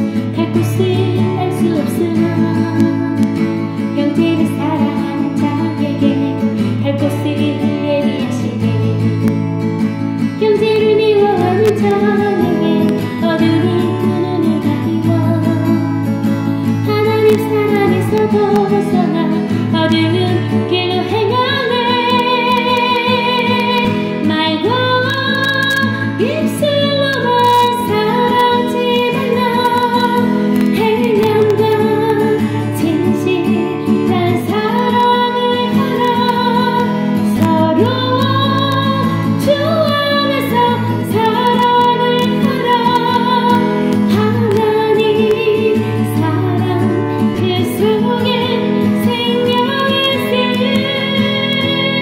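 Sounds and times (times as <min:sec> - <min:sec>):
instrumental accompaniment: 0:00.0 - 0:52.0
woman singing praise song: 0:16.9 - 0:52.0.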